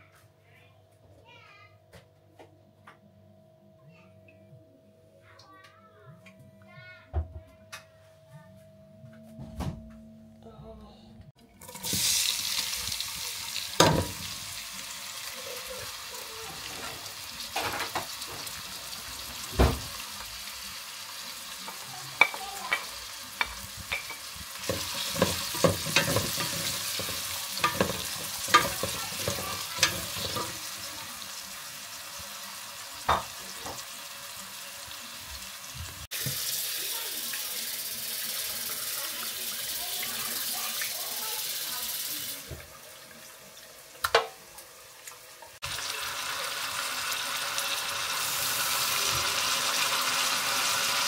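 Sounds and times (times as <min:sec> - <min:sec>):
onions sizzling in a pot: 0:11.5 - 0:51.0
wooden spoon scraping a pot: 0:23.8 - 0:30.7
tap running into a sink: 0:35.8 - 0:36.5.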